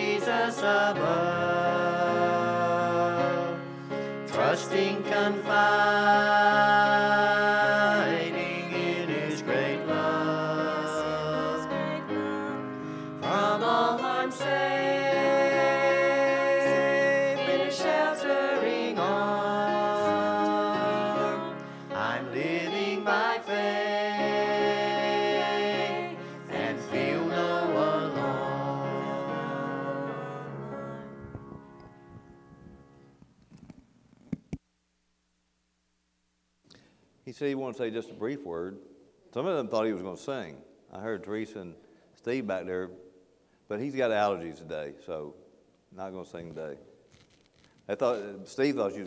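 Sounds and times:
group singing a hymn: 0.0 - 31.4.

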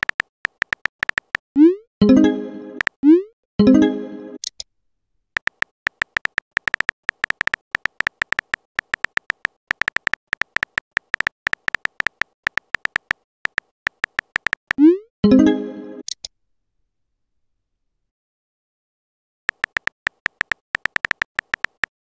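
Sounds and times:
phone keyboard typing clicks: 0.0 - 1.4, 5.4 - 14.9, 19.5 - 21.9.

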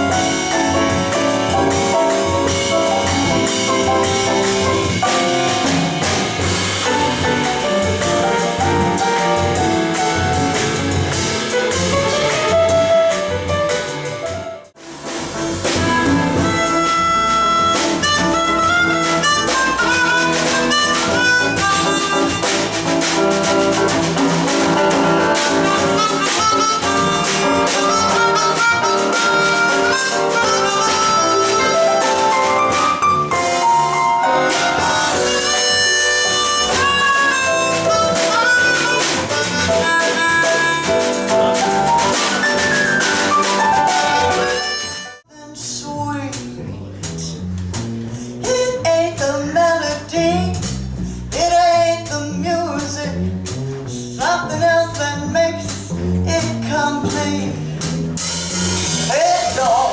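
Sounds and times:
drum kit: 0.0 - 59.9
grand piano: 0.0 - 59.9
upright bass: 0.0 - 59.9
amplified harmonica bending notes: 15.8 - 22.7, 25.5 - 33.4, 34.3 - 45.2.

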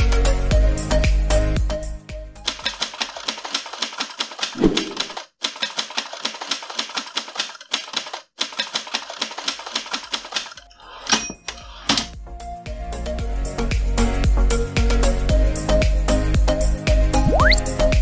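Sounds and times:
typewriter keys clacking: 2.5 - 10.7.

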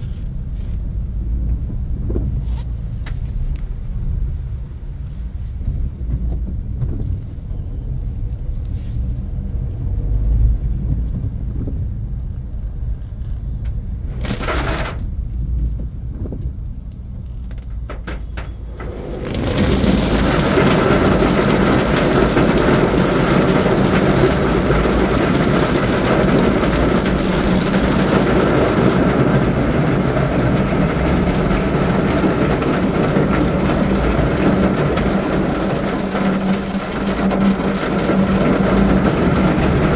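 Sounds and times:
car engine and road rumble: 0.0 - 39.9
heavy rain on car roof: 14.1 - 15.9, 16.6 - 39.9.

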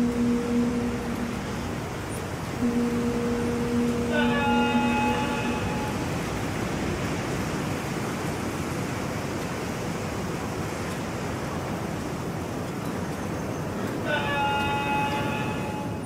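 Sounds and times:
sea water: 0.0 - 16.0
wind: 0.0 - 16.0.

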